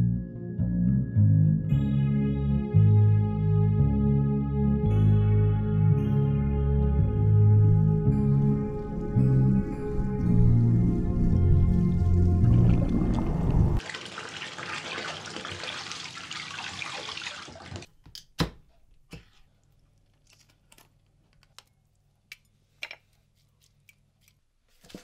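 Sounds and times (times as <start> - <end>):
music: 0.0 - 13.8
running water: 10.7 - 17.9.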